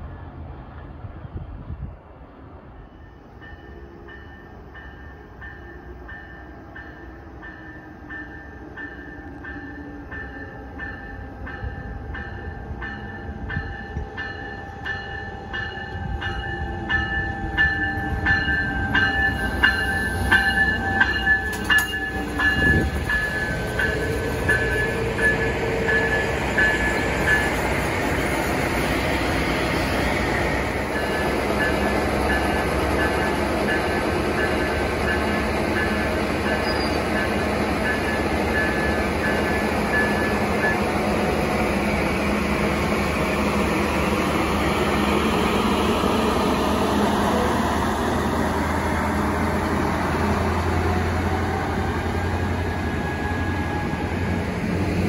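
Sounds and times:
passing train rumble: 0.0s - 55.0s
crossing bell ringing: 2.8s - 28.6s, 29.8s - 42.8s.

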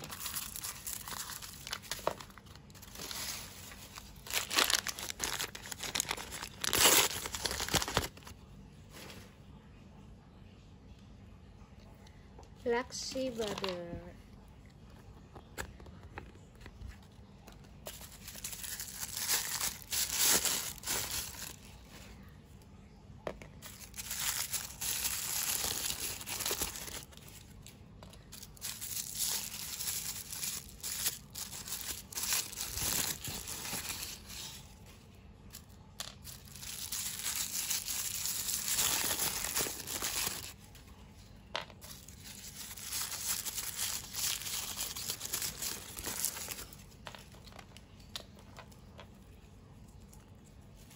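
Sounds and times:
plastic wrapping torn and crumpled: 0.0s - 8.3s, 17.8s - 21.7s, 23.6s - 34.7s, 35.5s - 40.6s, 41.8s - 48.3s.

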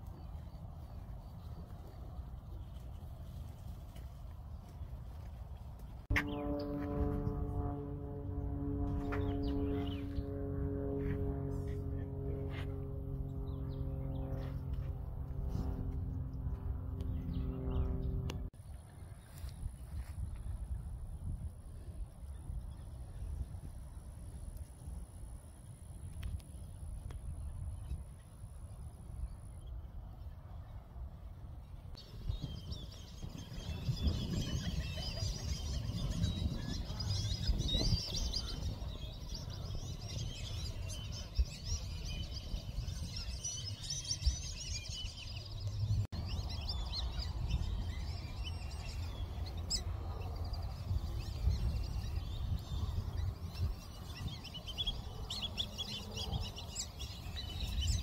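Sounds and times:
wind rumble on microphone: 0.0s - 58.0s
birds chirping and calling: 32.0s - 58.0s.

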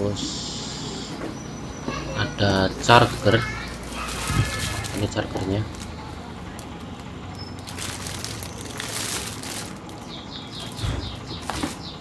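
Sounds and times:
plastic wrapping crinkling: 2.8s - 10.8s, 11.4s - 11.8s
bird chirping rapidly: 7.3s - 12.0s.

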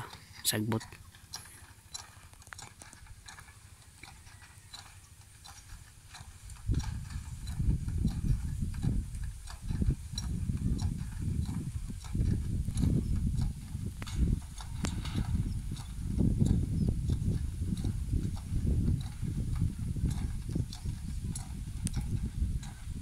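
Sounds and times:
faint ticks and rustling: 0.0s - 23.0s
wind buffeting microphone: 5.4s - 23.0s.

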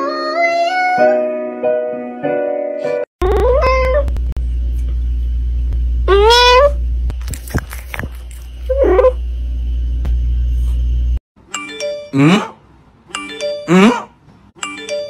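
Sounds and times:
low hum: 3.2s - 11.2s.

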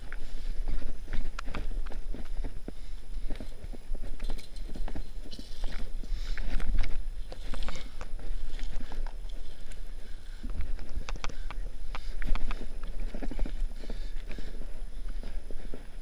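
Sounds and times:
scrambling on dry dirt: 0.0s - 16.0s
wind rumble: 0.0s - 16.0s.

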